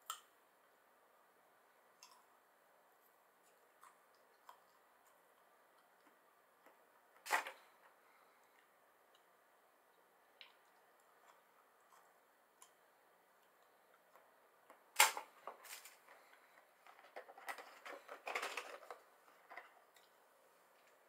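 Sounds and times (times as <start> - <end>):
packaging crackling and rustling: 15.0 - 19.7.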